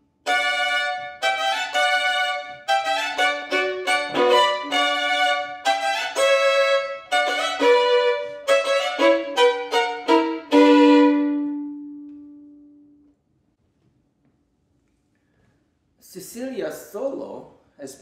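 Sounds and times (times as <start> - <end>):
solo violin playing: 0.0 - 13.0.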